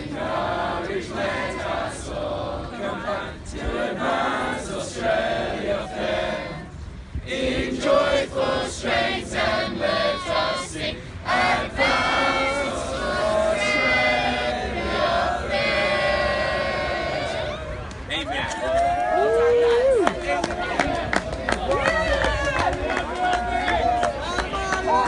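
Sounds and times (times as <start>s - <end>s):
group singing in unison: 0.0s - 17.7s.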